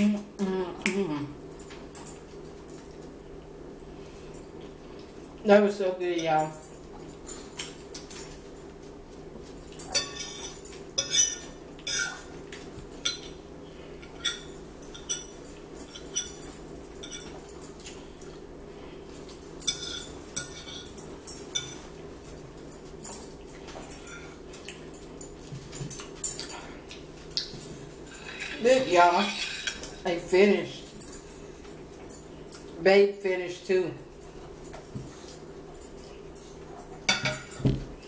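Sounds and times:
forks clinking on plates: 6.1s - 18.4s, 19.1s - 33.2s, 34.0s - 38.0s.

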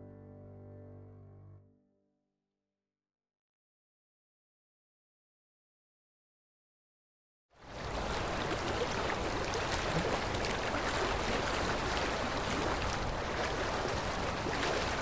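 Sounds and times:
river water rushing over rapids: 7.7s - 15.0s.

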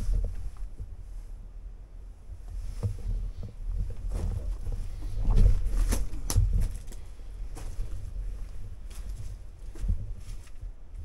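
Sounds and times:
steady low rumble: 0.0s - 11.0s
footsteps on gravelly rock: 2.9s - 10.7s.

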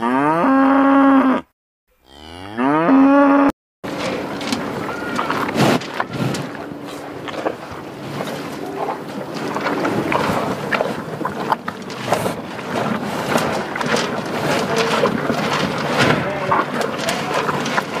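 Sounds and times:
horse tearing and chewing grass: 3.8s - 18.0s.

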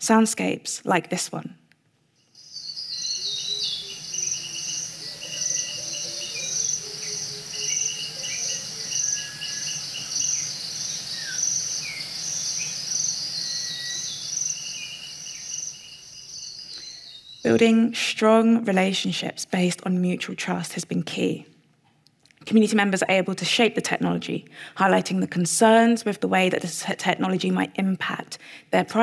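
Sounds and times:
insects chirring in pulses: 2.2s - 17.6s
fast chittering trill: 2.3s - 16.6s.

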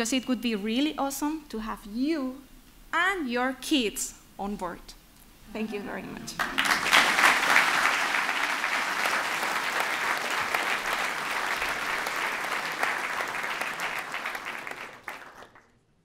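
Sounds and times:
audience applauding: 6.3s - 15.7s.

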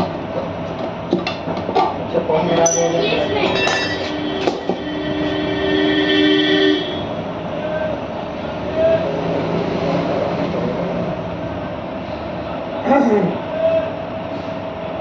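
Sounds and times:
background din: 2.4s - 7.1s
two-note horn blast: 2.5s - 7.3s
sharp metallic knocks: 2.6s - 5.3s.

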